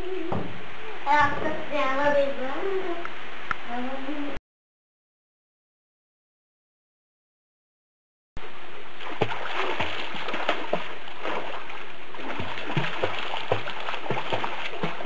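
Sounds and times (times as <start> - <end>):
rush of water: 8.4 - 15.0
water splashing from swimming: 8.8 - 15.0.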